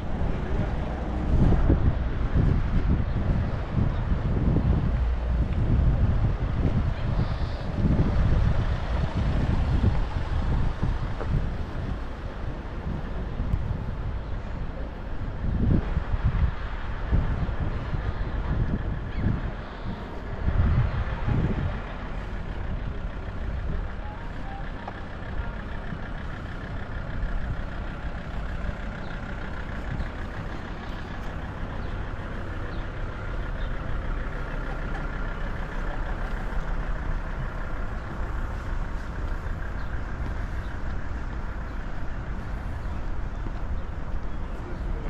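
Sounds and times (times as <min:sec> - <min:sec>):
wind gust on microphone: 0:00.0 - 0:12.1
bus engine idling: 0:00.0 - 0:45.0.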